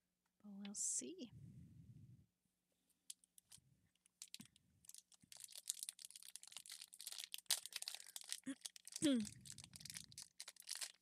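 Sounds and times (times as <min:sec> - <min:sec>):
foil wrapper crinkling and tearing: 0:03.1 - 0:11.0.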